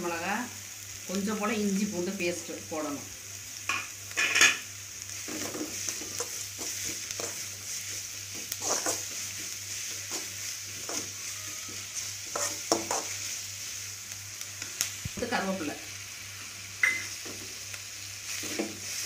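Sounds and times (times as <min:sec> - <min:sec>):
onions sizzling in oil: 0:00.0 - 0:19.0
metal spatula scraping pan: 0:08.3 - 0:09.2, 0:10.1 - 0:13.2.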